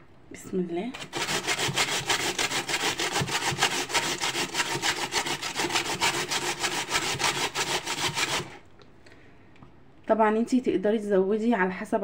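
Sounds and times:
potato rasping on grater: 1.0s - 8.6s.

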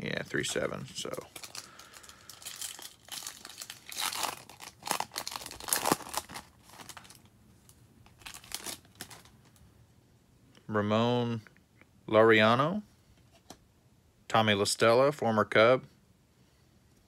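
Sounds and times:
foil wrapper tearing and crinkling: 1.2s - 7.3s, 8.1s - 9.3s.

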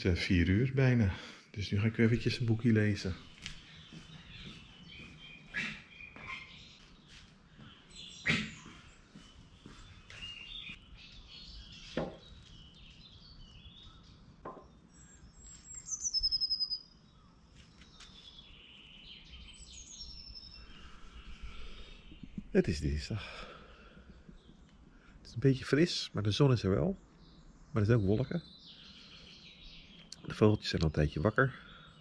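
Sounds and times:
small birds singing and chirping: 0.0s - 32.0s
bird trilling rapidly: 15.4s - 16.9s.

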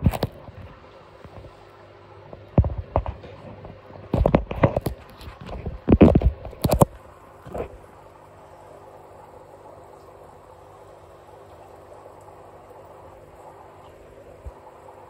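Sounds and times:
faint steady hum: 0.0s - 15.0s
camera handling knocks and rubs: 4.1s - 7.7s.

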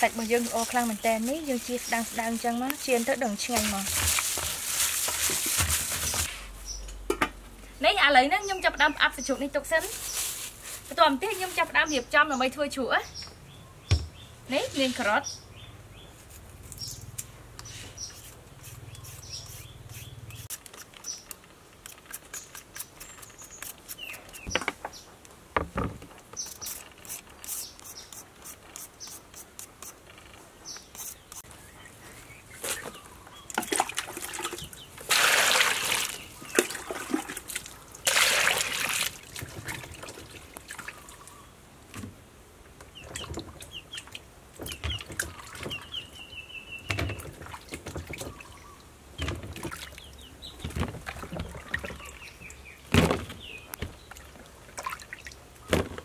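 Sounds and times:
birds chirping: 0.0s - 3.9s, 7.6s - 10.3s, 10.9s - 16.2s, 16.8s - 25.2s, 26.3s - 29.4s, 30.1s - 37.4s, 40.7s - 41.7s, 42.8s - 54.5s
vegetable peeler scraping carrot: 18.0s - 24.4s, 26.4s - 30.0s, 30.8s - 31.5s
water splashing in plastic basin: 33.6s - 41.1s, 46.9s - 48.6s, 49.2s - 52.2s, 52.9s - 56.0s.

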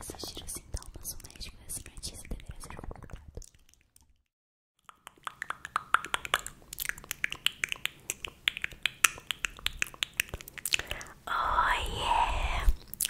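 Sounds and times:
finger snaps and clicks: 4.8s - 11.1s.

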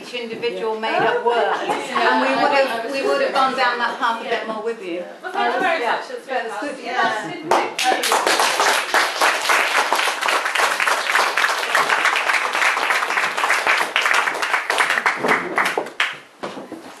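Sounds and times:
audience applauding: 7.5s - 16.2s.

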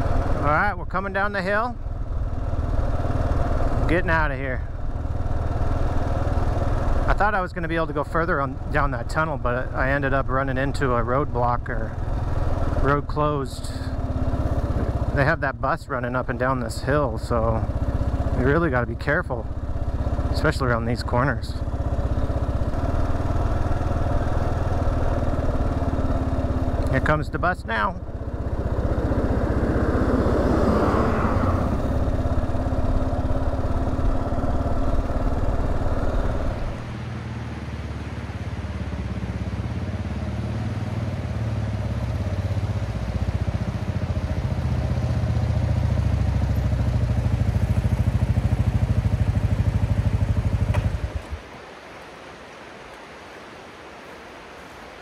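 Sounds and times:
bus passing: 0.0s - 0.4s, 28.0s - 52.3s
motorcycle engine running: 0.0s - 51.4s
river rushing: 49.0s - 55.0s.

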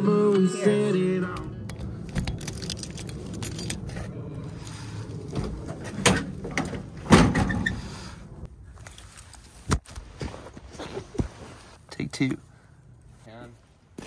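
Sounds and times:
keys jangling: 1.7s - 4.0s.

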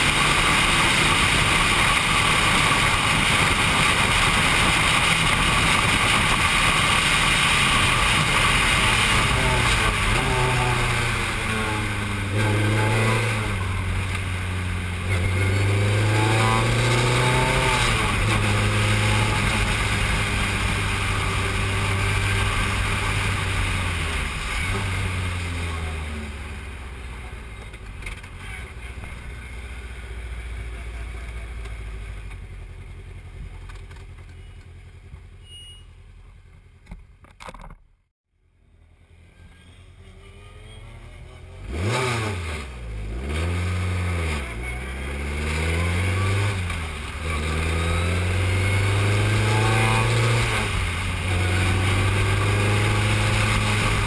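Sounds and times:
racing car engine revving: 0.0s - 26.5s, 40.1s - 54.0s.

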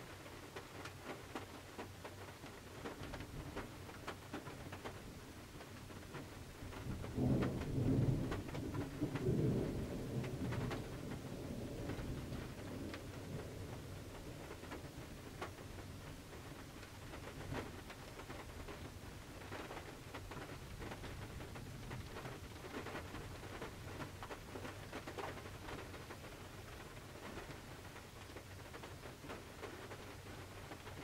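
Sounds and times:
rain pattering on car roof: 0.0s - 31.0s
thunder rumble: 6.5s - 16.6s.

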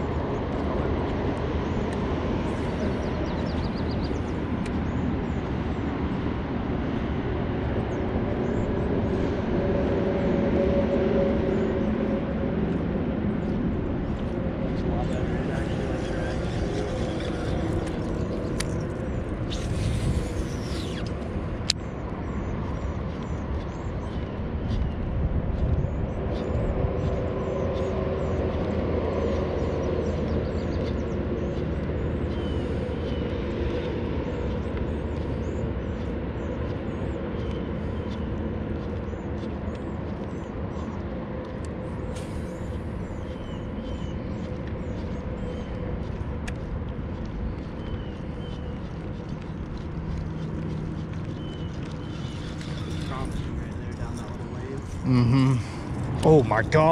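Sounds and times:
wind rumble on microphone: 0.0s - 56.9s
trolling motor humming: 12.3s - 22.0s, 49.2s - 56.9s.

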